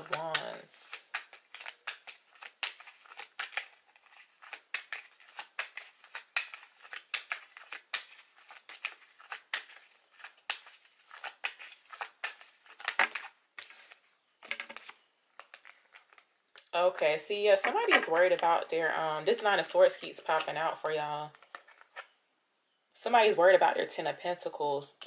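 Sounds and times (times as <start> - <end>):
cards being shuffled by hand: 0.0 - 16.3, 19.8 - 22.1.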